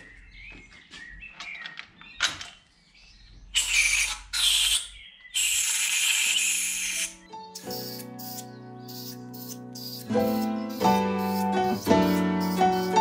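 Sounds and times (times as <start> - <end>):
compressed air blasts hissing: 3.6 - 13.0.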